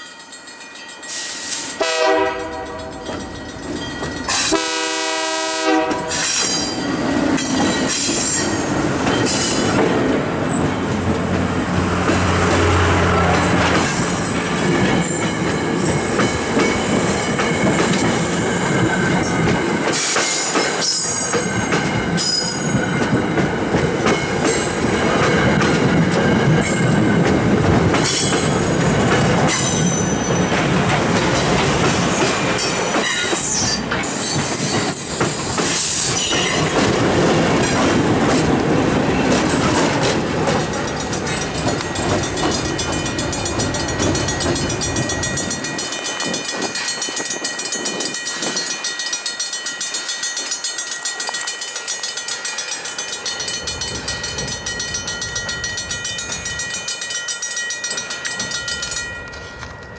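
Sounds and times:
crossing bell ringing: 0.0s - 59.9s
diesel locomotive passing: 0.0s - 59.9s
wheels clattering over rails: 6.0s - 48.6s.

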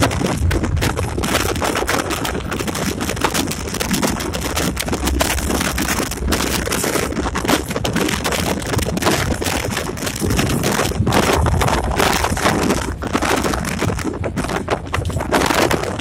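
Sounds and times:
locomotive engine and rails rumbling: 0.0s - 15.2s
rattling and clatter from track: 0.0s - 16.0s
wind buffeting microphone: 0.0s - 16.0s.

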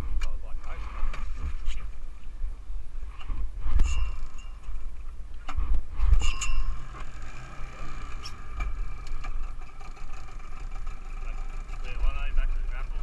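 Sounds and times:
wind buffeting microphone: 0.8s - 6.8s
outboard motor idling: 6.7s - 13.0s.

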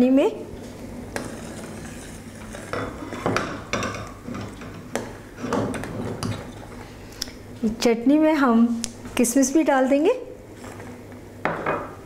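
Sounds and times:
metal spoon scraping a saucepan: 1.2s - 3.3s.

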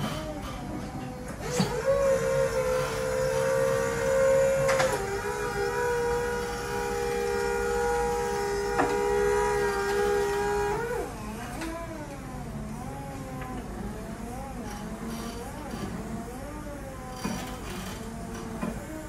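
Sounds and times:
hydraulic lift pump whining: 0.0s - 19.0s.

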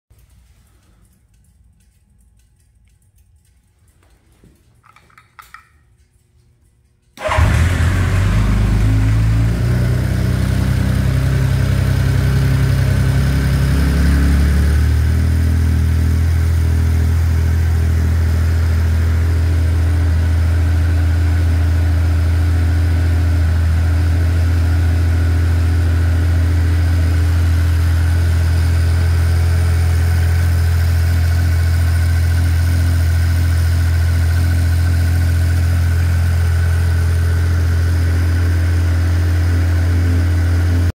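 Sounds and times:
faint clicks: 0.2s - 7.2s
motorcycle engine starting and idling: 7.1s - 40.9s.

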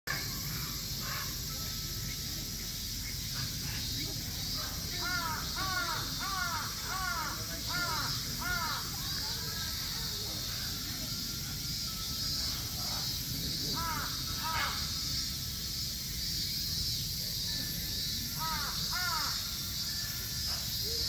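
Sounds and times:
bird cawing: 5.0s - 8.9s, 13.8s - 14.9s, 18.4s - 19.5s.

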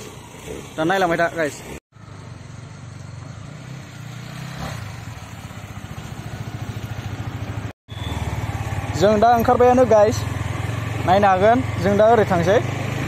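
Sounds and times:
motorcycle engine idling: 4.9s - 13.0s.

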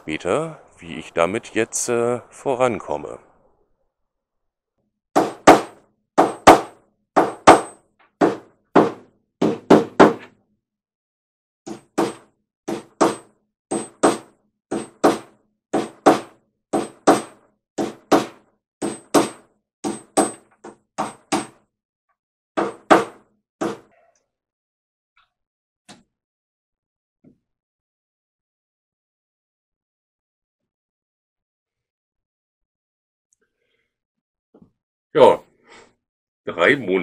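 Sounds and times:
hammer striking workpiece: 5.2s - 10.3s, 11.7s - 21.6s.

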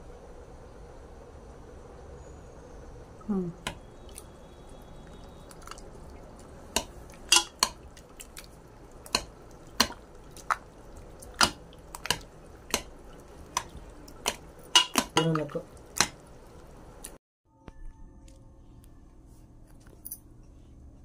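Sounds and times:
spoon scraping metal pot: 6.8s - 7.8s, 13.6s - 15.4s.

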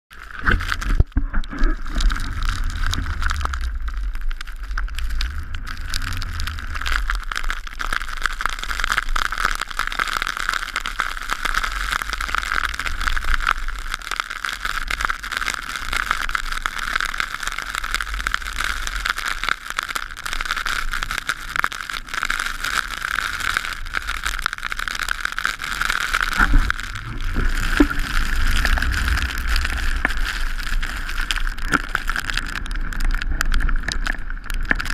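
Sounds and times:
skis sliding over snow: 0.2s - 9.6s, 25.3s - 34.9s
wind on microphone: 0.3s - 7.3s, 26.3s - 34.5s.

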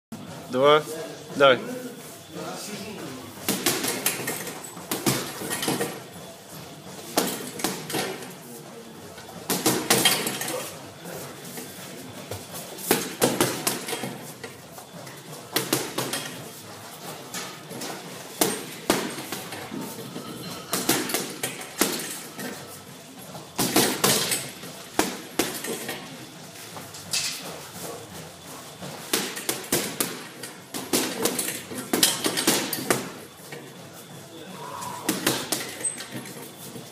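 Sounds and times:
gloves striking punching bag: 9.5s - 10.0s, 12.9s - 14.0s, 15.5s - 16.3s, 29.1s - 33.2s, 35.1s - 35.7s.

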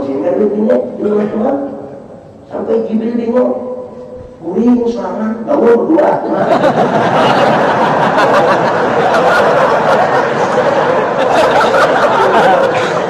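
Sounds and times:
audience laughing: 6.2s - 13.0s.

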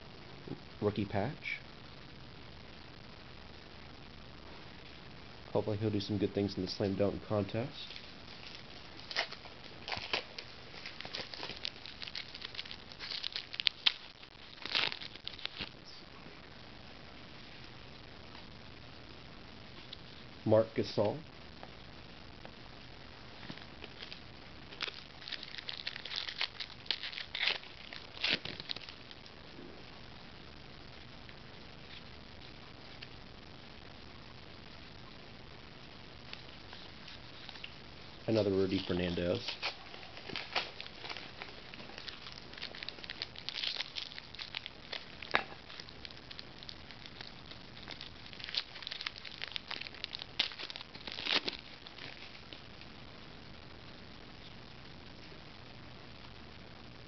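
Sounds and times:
foil pack crinkling: 7.8s - 15.8s, 23.4s - 29.1s, 36.2s - 52.7s
wrapper snap: 7.9s - 15.8s, 23.5s - 29.1s, 36.3s - 52.6s.

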